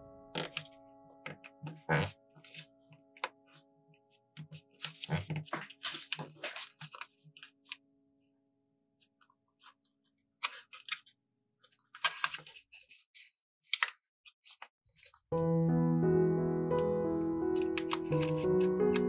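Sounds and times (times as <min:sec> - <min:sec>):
music: 0:00.0 - 0:04.2, 0:15.3 - 0:19.0
paper rustling and crackling: 0:01.4 - 0:07.8, 0:09.6 - 0:15.3, 0:17.6 - 0:19.0.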